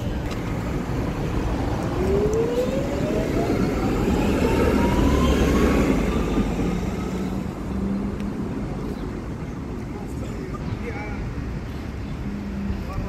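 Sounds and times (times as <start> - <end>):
wheels rumbling on rails: 0.0 - 13.0
tram motor whine rising: 0.7 - 8.4.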